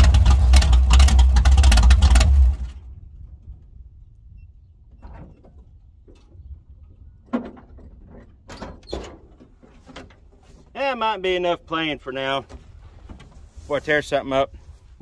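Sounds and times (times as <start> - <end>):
pickup engine running: 0.0 - 2.9.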